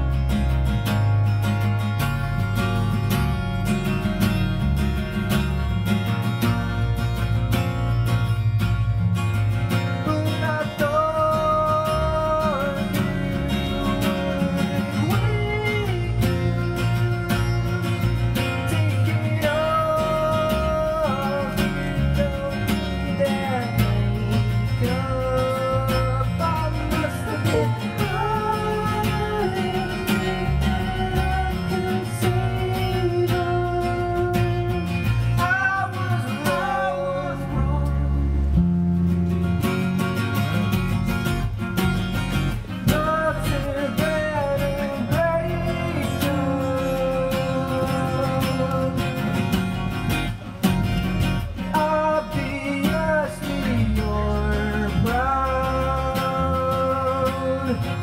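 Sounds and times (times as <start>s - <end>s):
acoustic guitar: 0.0s - 58.0s
electric bass: 0.0s - 58.0s.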